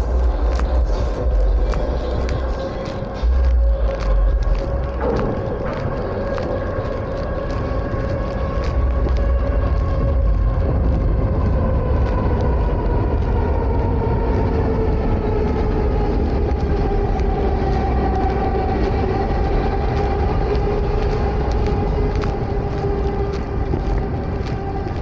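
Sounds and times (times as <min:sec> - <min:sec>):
elevated train rumbling overhead: 0:00.0 - 0:25.0.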